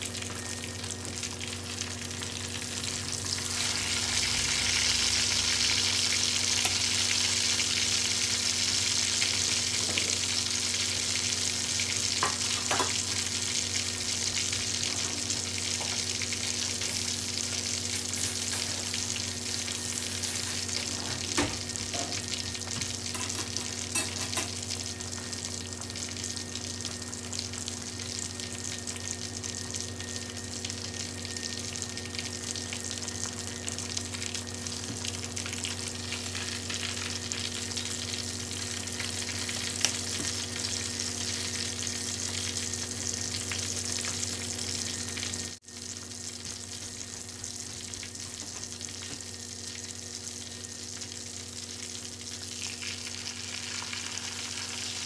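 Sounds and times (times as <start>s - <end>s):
oil sizzling and crackling: 0.0s - 55.0s.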